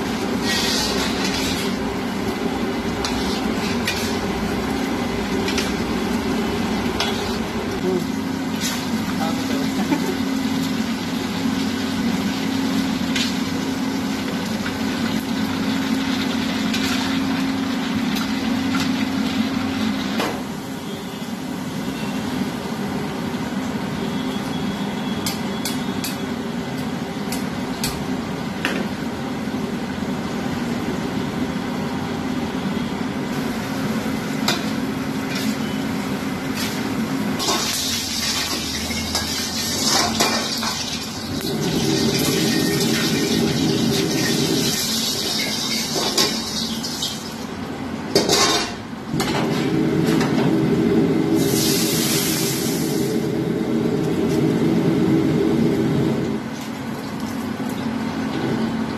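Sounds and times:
oil sizzling: 0.0 - 20.7, 33.3 - 58.3
gas burner and exhaust noise: 0.0 - 58.9.

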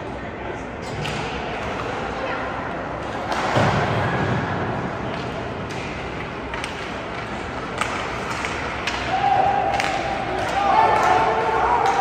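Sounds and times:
skating and arena noise: 0.0 - 12.0
hockey sticks clacking on puck: 5.0 - 12.0.

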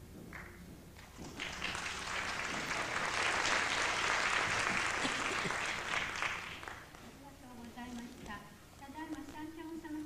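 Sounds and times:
audience applauding: 1.0 - 7.0.

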